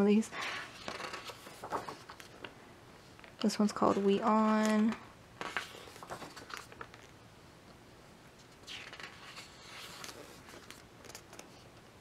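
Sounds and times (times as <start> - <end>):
book pages turning: 0.7 - 2.5, 3.7 - 7.2, 8.4 - 11.7.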